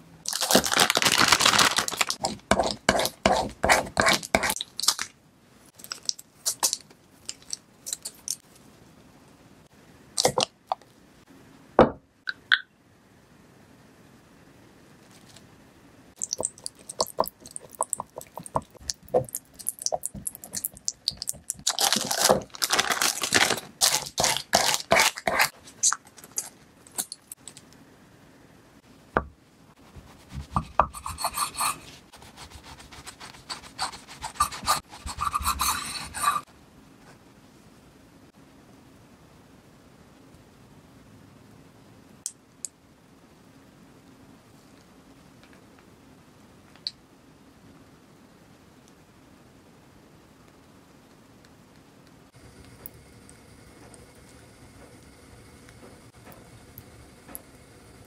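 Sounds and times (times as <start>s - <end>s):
plastic bag crinkling: 0.3s - 2.4s, 19.6s - 27.6s.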